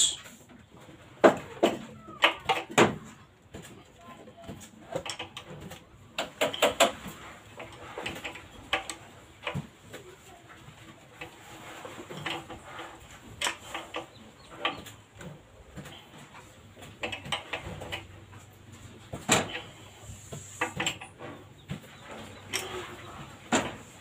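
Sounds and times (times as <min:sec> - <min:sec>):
hand tool and metal parts clicking: 0:03.6 - 0:09.6, 0:11.2 - 0:18.4, 0:19.3 - 0:24.0.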